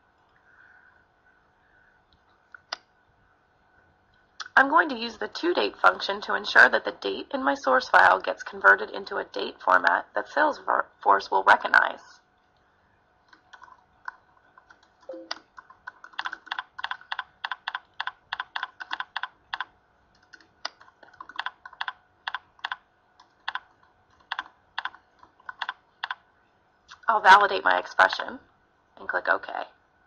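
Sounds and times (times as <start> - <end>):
typing on a keyboard: 13.2 - 26.2.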